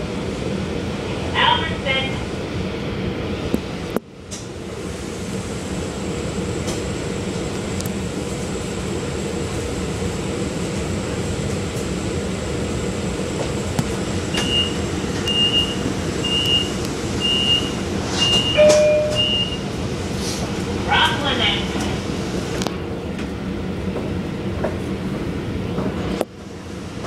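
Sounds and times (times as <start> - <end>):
low rumble inside train coach: 0.0 - 27.0
short high beeps: 18.3 - 19.6.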